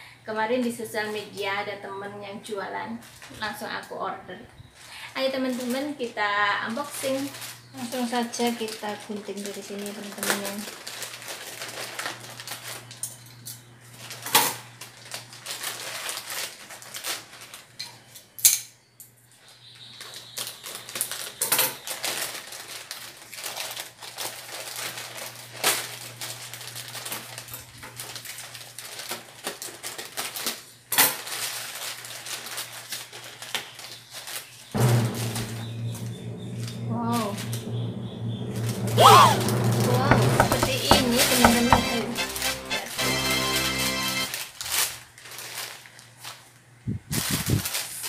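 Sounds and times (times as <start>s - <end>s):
plastic packaging rustling: 4.6s - 13.1s, 13.9s - 18.1s, 19.4s - 34.7s, 44.2s - 48.0s
scissors snipping plastic bag: 20.9s - 34.3s, 44.3s - 46.4s
sharp clicks and knocks: 40.0s - 42.0s.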